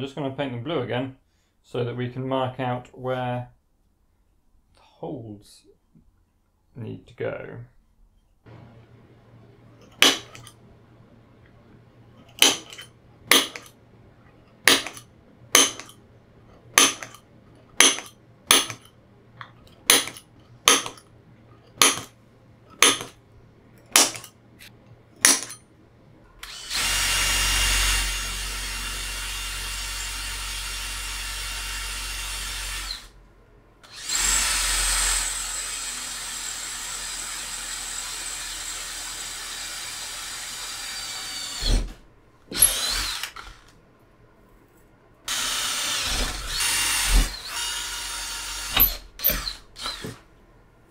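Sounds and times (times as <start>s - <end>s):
power drill drilling aluminium: 26.4s - 33.1s, 33.8s - 41.9s, 42.5s - 43.7s, 45.3s - 50.2s.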